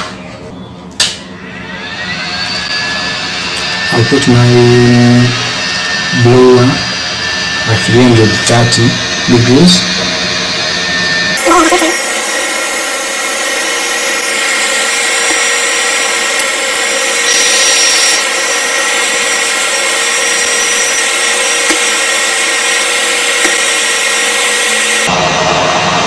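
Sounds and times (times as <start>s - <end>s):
hot air blower rushing: 1.4s - 26.0s.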